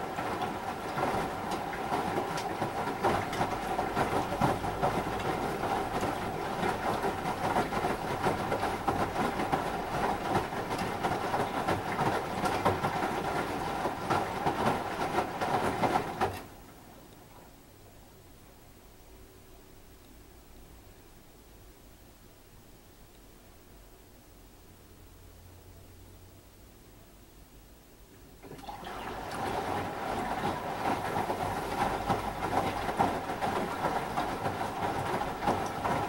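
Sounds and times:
washing machine drum tumbling: 0:00.0 - 0:16.5, 0:28.4 - 0:36.0
water sloshing in drum: 0:00.0 - 0:16.7, 0:28.4 - 0:36.0
washing machine hum: 0:00.0 - 0:18.7, 0:28.1 - 0:36.0.

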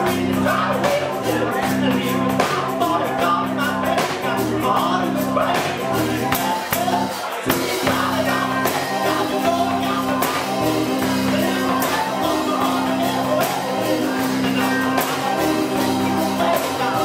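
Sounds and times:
drums: 0:00.0 - 0:17.0
organ bass notes: 0:00.0 - 0:17.0.

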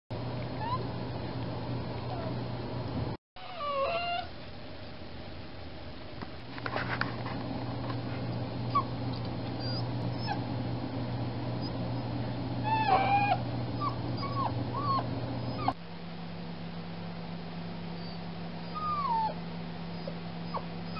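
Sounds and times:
steady low hum: 0:00.2 - 0:03.5, 0:04.2 - 0:20.9
puppy whining: 0:00.6 - 0:00.9, 0:02.1 - 0:02.4, 0:03.4 - 0:04.4, 0:08.7 - 0:10.4, 0:11.6 - 0:15.8, 0:18.0 - 0:20.9.

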